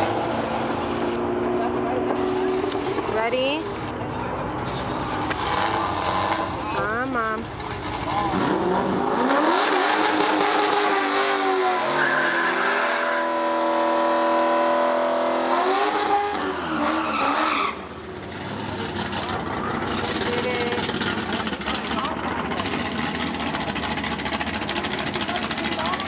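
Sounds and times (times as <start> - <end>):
engine revving: 4.7 - 17.7, 18.3 - 26.0.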